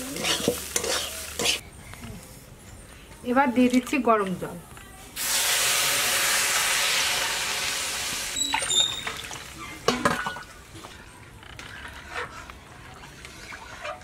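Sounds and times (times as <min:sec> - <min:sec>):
ladle stirring and scraping: 0:00.0 - 0:01.6, 0:08.4 - 0:14.0
water poured sizzling in pan: 0:05.2 - 0:10.7.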